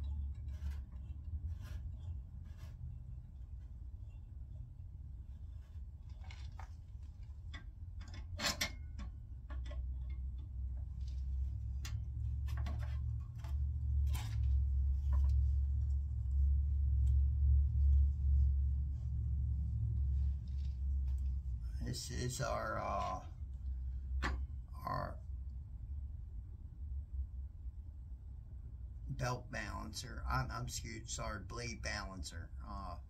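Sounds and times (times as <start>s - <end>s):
clicks and knocks of hand tools: 7.4s - 10.9s
low rumble: 9.1s - 29.1s.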